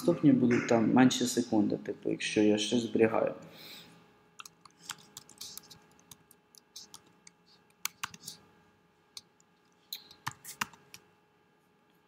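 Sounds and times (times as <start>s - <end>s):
computer keyboard keystrokes: 4.4s - 8.3s, 10.0s - 11.0s.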